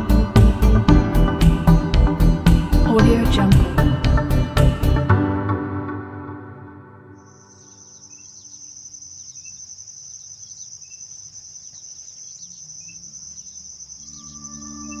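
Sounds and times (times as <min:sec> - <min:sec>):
crickets trilling: 0:07.2 - 0:15.0.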